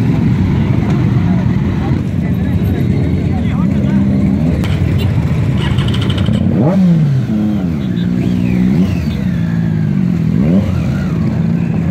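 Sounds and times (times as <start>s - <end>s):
motorbike engines revving: 0.0s - 11.9s.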